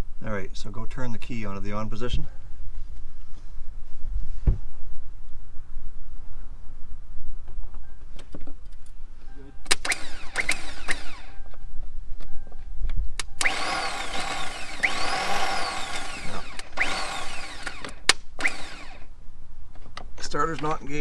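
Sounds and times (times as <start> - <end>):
starter motor whirring: 9.7 - 11.5, 13.2 - 19.1.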